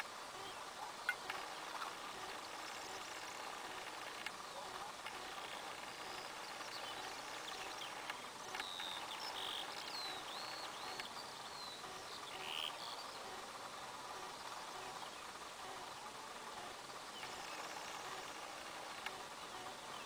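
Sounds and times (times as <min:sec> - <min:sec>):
faint steady hiss: 0:00.0 - 0:20.0
bird chirps and calls: 0:05.4 - 0:13.2.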